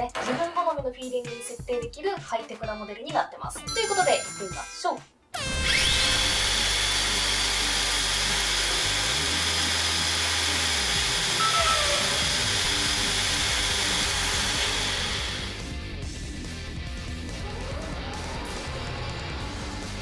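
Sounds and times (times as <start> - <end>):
electric motor high whine: 5.4 - 15.7.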